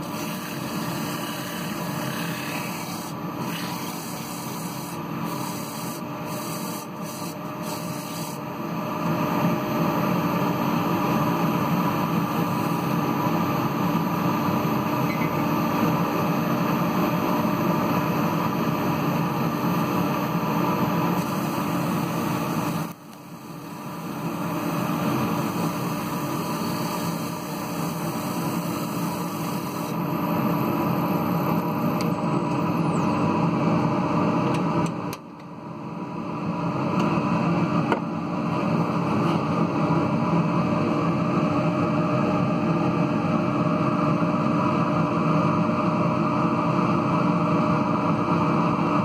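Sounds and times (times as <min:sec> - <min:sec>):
sandpaper rubbing on spinning wood: 0:00.0 - 0:08.4
wood lathe running: 0:00.0 - 0:08.4.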